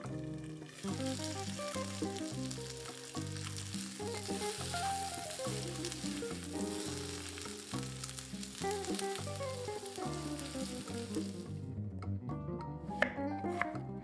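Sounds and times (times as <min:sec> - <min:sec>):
potatoes sizzling in a pan: 0:00.0 - 0:11.6
background music: 0:00.0 - 0:14.0
spatula stirring potatoes: 0:00.4 - 0:11.5.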